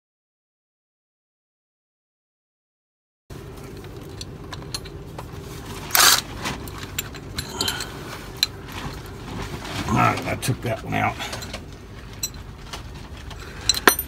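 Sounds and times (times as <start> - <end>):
metal rattle: 11.2 - 14.0.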